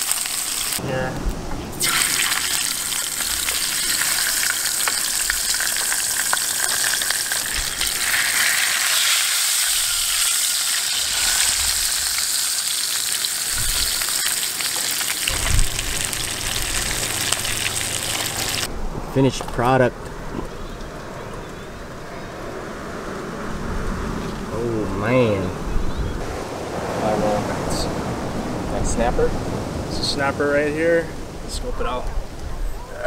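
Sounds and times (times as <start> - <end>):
fish sizzling in hot oil: 0.0 - 0.8, 1.8 - 18.7.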